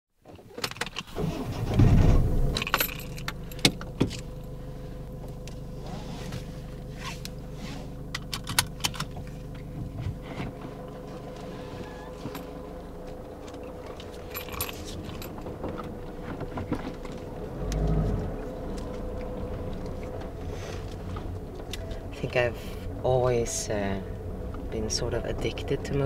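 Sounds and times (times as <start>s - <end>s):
car engine hum: 0.3s - 26.0s
loud low rumble: 1.6s - 3.6s, 14.3s - 26.0s
keys jangling: 2.6s - 3.8s, 13.6s - 15.5s.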